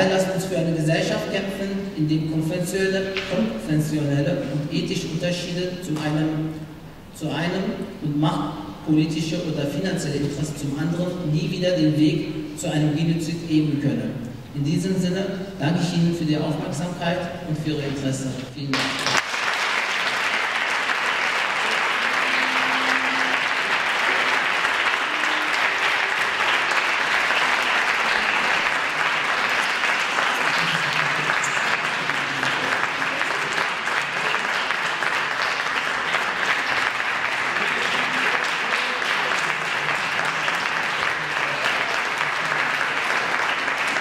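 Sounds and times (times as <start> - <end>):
audience applauding: 18.7 - 44.0.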